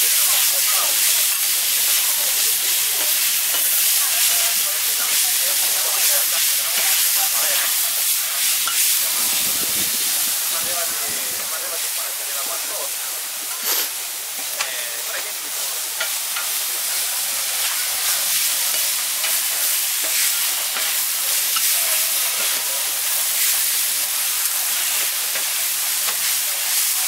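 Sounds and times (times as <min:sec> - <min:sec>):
beef sizzling on a griddle: 0:00.0 - 0:27.0.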